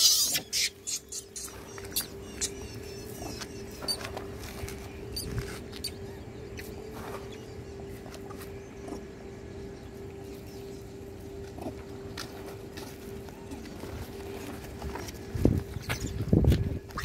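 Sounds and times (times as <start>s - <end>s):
monkeys squeaking: 0.0s - 6.0s, 15.7s - 17.0s
faint steady hum: 0.0s - 17.0s.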